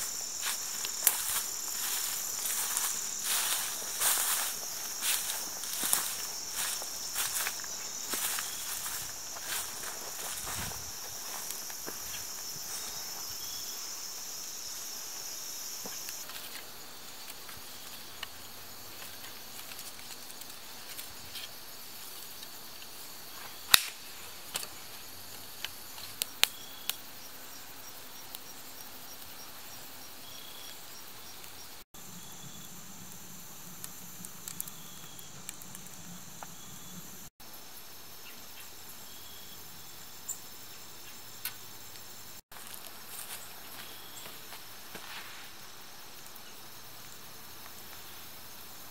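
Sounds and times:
campfire crackling: 0.0s - 27.0s, 30.6s - 37.3s
insects chirping: 0.0s - 48.9s.

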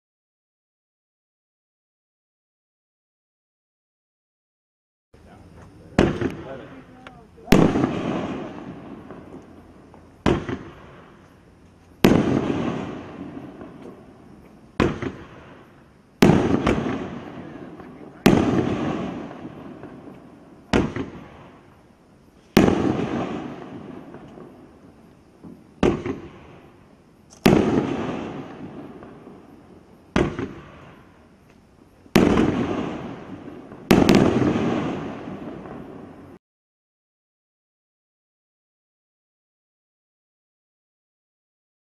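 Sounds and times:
firework bangs: 5.6s - 36.4s.

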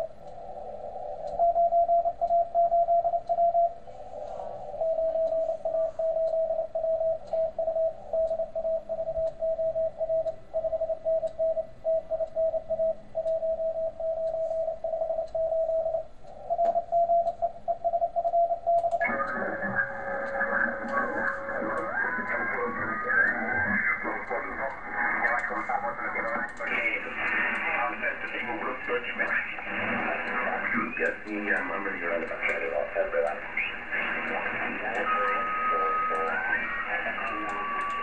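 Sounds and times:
radio band hiss: 0.0s - 1.4s, 3.8s - 6.4s, 14.4s - 14.7s, 19.0s - 38.0s
morse code tone: 1.3s - 38.0s.

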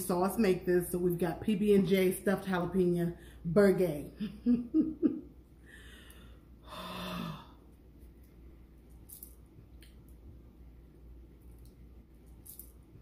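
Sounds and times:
woman sighing: 5.7s - 7.6s.

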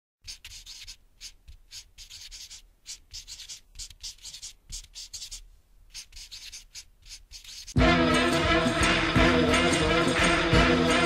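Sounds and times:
pen scratching on paper: 0.2s - 7.8s.

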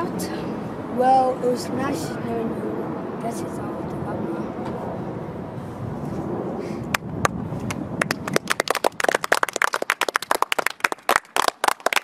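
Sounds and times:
children clapping: 8.0s - 12.0s.

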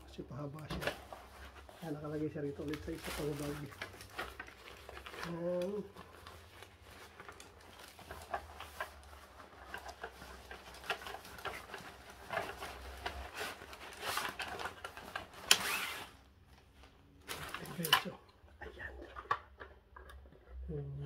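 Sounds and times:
fabric and plastic rustling: 0.0s - 20.7s.

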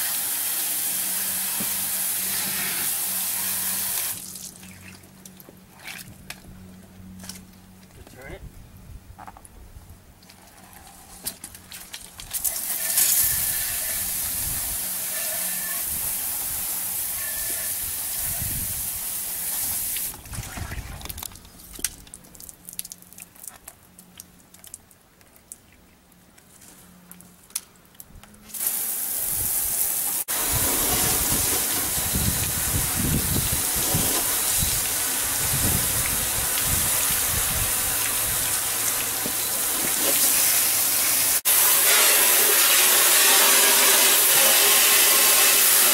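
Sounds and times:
water pattering on truck: 19.6s - 25.6s, 29.8s - 41.4s
water dripping: 21.0s - 25.6s
water spraying from wand: 28.6s - 45.9s.

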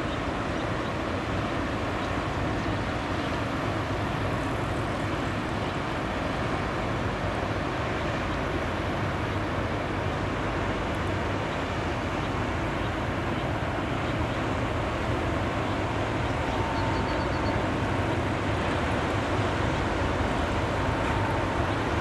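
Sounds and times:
ship engine droning: 0.0s - 22.0s.

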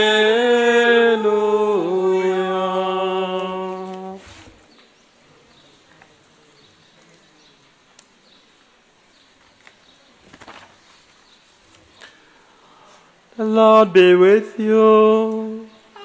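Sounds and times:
paper sheets clicking: 9.5s - 11.0s
faint bird chirps: 15.6s - 16.0s.

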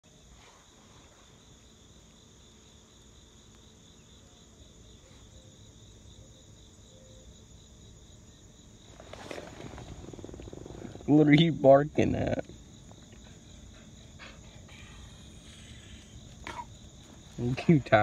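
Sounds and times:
insects chirring: 0.0s - 18.0s
rustling and handling noise: 8.9s - 11.1s.

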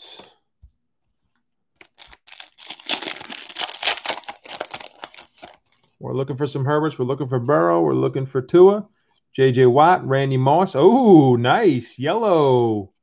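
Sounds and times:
foil wrapper tearing and crinkling: 1.8s - 6.0s.

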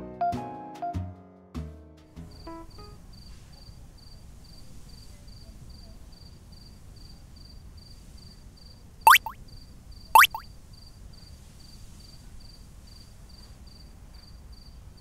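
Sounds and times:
cartoon rising sweep effect: 9.1s - 9.4s, 10.2s - 10.4s.

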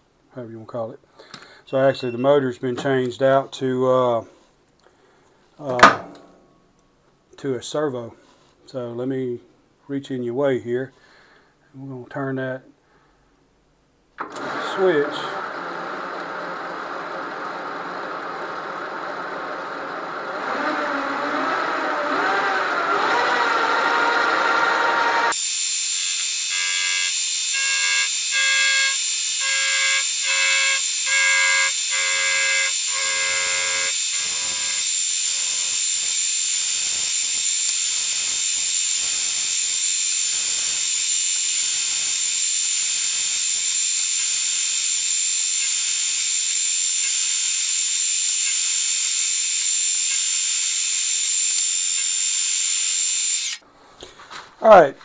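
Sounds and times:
lathe motor whine: 14.2s - 53.6s
metal cutting noise: 18.5s - 53.6s
high-pitched pulsing screech: 20.3s - 53.6s.

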